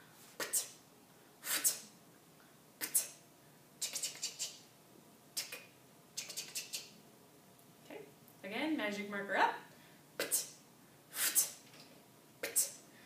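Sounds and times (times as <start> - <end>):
mouth hissing shh: 0.4 - 0.8, 1.4 - 2.0, 2.8 - 3.2, 3.8 - 4.7, 5.4 - 7.0, 10.2 - 11.6, 12.4 - 12.9
mouth hissing clicks: 5.4 - 6.9.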